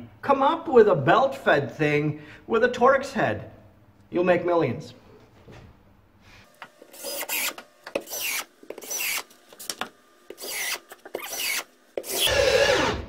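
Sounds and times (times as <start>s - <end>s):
cordless drill driving screws: 6.8s - 9.3s, 10.3s - 13.0s.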